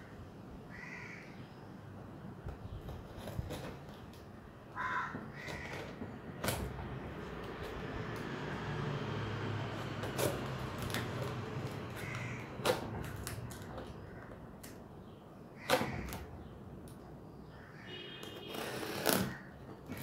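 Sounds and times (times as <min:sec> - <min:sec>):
tape rustling: 0:02.4 - 0:15.0, 0:18.2 - 0:20.0
scissors cutting packing tape: 0:09.7 - 0:14.8, 0:18.2 - 0:20.0.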